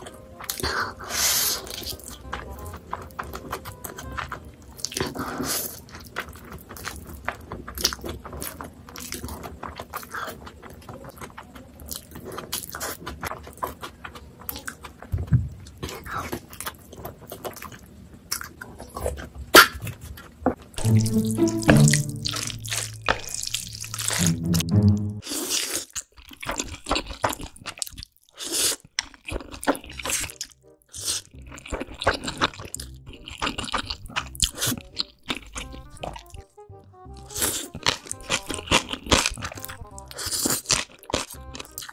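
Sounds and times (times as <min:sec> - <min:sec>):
chewing and slurping noodles: 0:00.0 - 0:20.4, 0:22.3 - 0:24.5, 0:25.2 - 0:36.4, 0:37.1 - 0:41.9
low pitched tone: 0:20.8 - 0:25.2.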